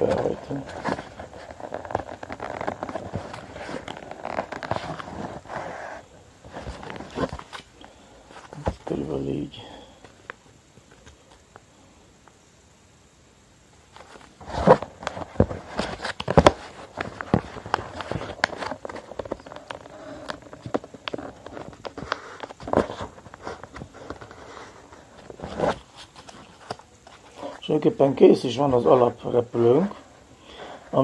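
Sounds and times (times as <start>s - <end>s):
paper being folded and creased: 0.0s - 7.7s, 14.0s - 27.7s.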